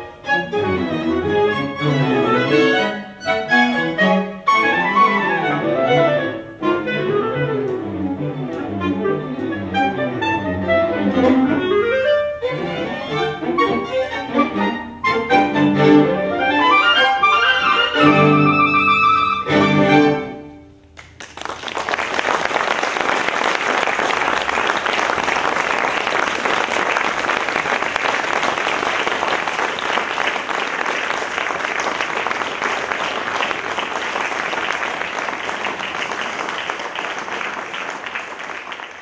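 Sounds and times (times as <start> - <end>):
audience applause: 21.0 - 39.0.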